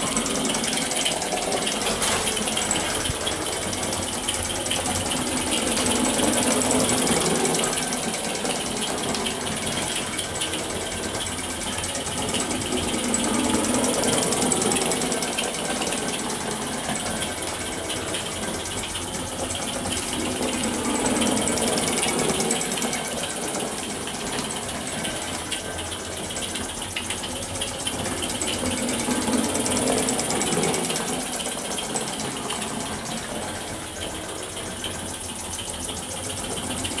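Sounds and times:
steam hissing: 0.0 - 26.2
toy steam engine chuffing: 0.0 - 37.0.

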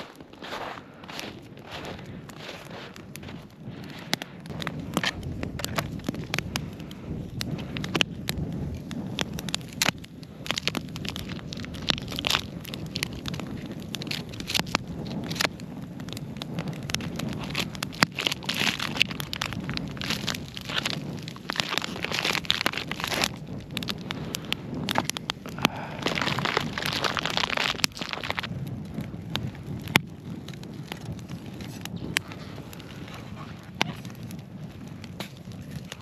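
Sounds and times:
campfire crackling and popping: 0.0 - 36.0
plastic packaging crinkling: 9.2 - 15.6, 16.6 - 28.5.

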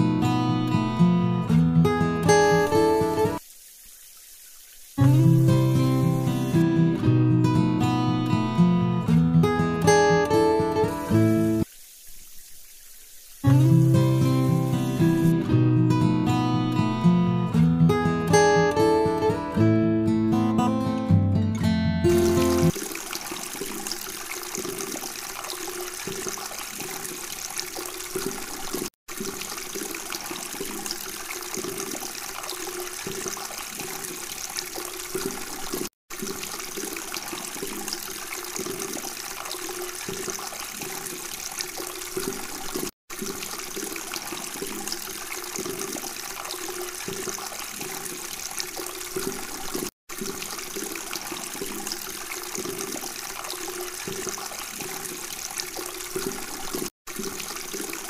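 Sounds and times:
fountain water splashing: 9.9 - 15.4, 22.1 - 58.0.

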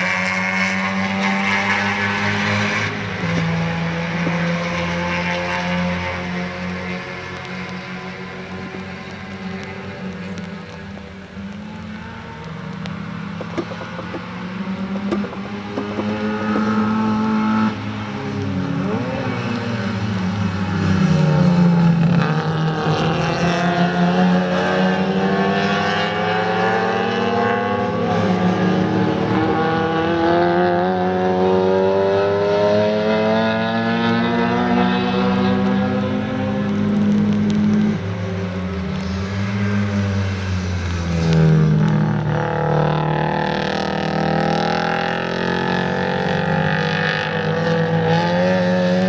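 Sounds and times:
race car engines at high revs: 0.0 - 49.0.

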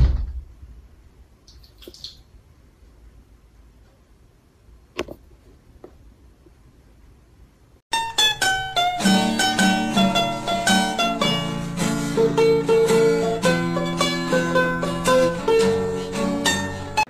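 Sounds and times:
plucked string instrument music: 7.9 - 17.0.

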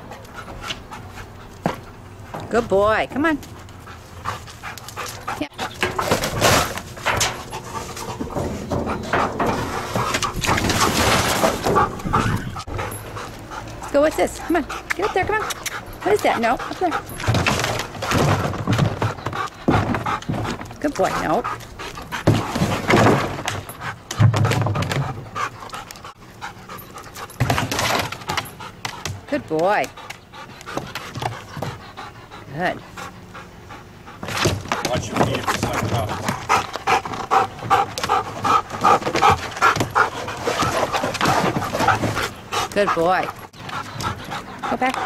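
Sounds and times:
dog panting: 0.0 - 2.3, 3.3 - 6.4, 7.3 - 10.6, 11.6 - 45.0
knocks and rustles: 4.4 - 13.2, 16.8 - 25.4, 34.2 - 44.3.

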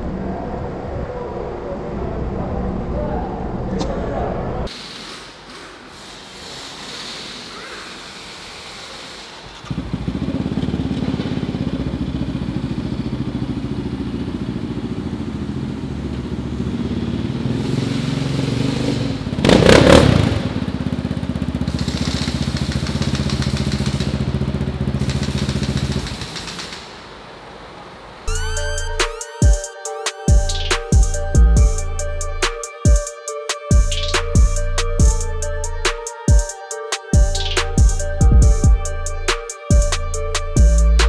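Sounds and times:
quad engine running: 9.6 - 26.7.

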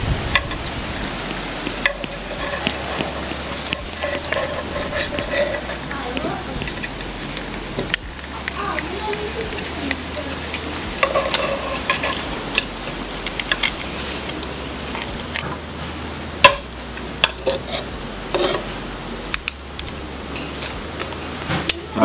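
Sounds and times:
knife tapping and scraping metal pan: 1.3 - 8.6.

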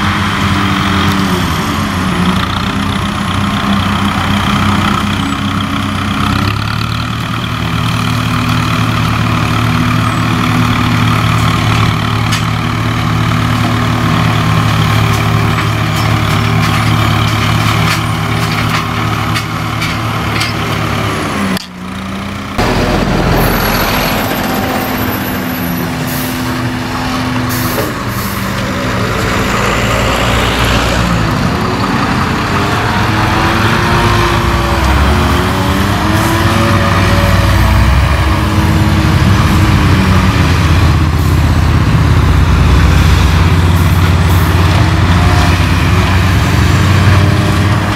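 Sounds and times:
tractor diesel engine mowing: 0.0 - 47.9
vehicles passing by: 0.0 - 47.9.

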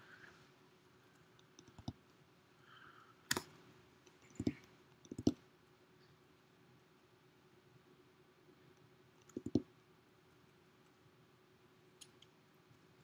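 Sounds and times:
faint clicks and taps: 1.1 - 2.2, 3.3 - 6.2, 8.7 - 9.7.

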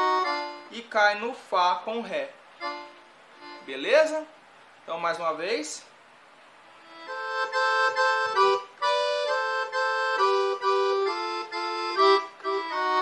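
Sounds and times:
accordion melody in thirds: 0.0 - 1.0, 2.5 - 4.4, 6.8 - 13.0.

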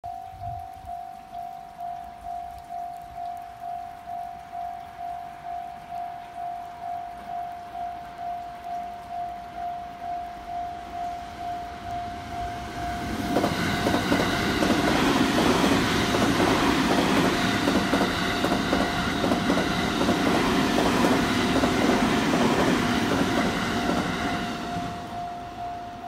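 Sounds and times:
level crossing warning bell: 0.1 - 26.0
train wheels clattering over rail joints: 13.3 - 24.2.

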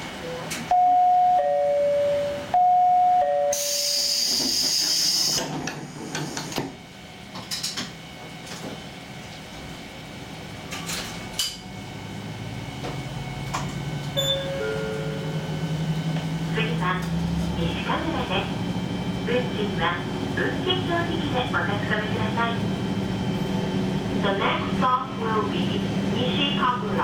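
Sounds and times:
loud air hiss: 3.5 - 5.4
falling two-note chime: 14.2 - 15.7.

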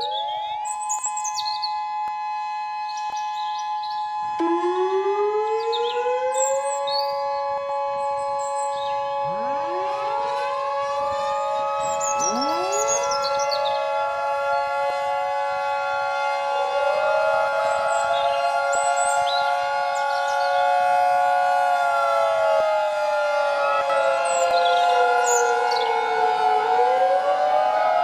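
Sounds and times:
birds chirping: 0.0 - 1.9, 2.8 - 14.7, 17.6 - 21.8, 24.0 - 26.5
warning sirens wailing: 0.0 - 28.0.

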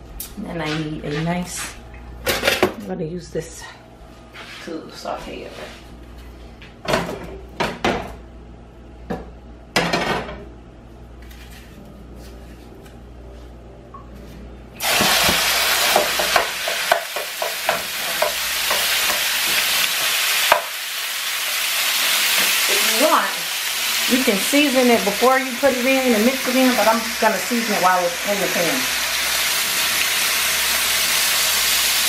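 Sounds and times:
chicken sizzling in oil: 14.8 - 32.0
utensil knocking on pan: 15.3 - 19.3.

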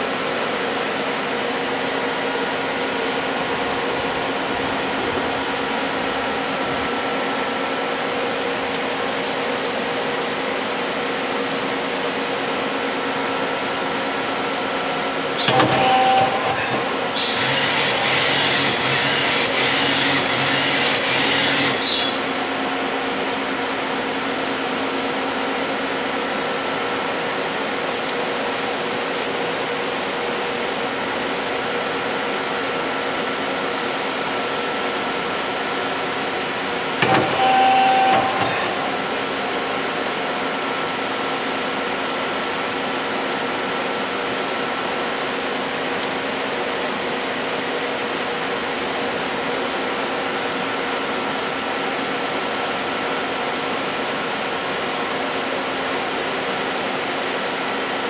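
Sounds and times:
machine tool humming: 0.0 - 9.3, 15.4 - 24.5, 36.0 - 40.2
tool turret clunk and whir: 15.4 - 22.3, 37.0 - 39.2.

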